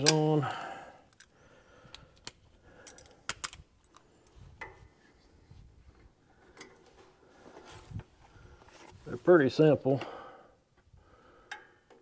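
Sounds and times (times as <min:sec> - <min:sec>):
metal hardware clicks and taps: 0:01.9 - 0:04.0.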